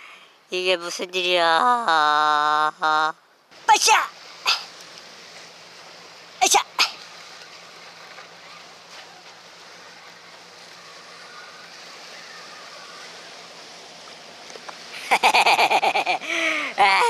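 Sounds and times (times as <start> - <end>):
sea surf washing on concrete: 3.5 - 17.0.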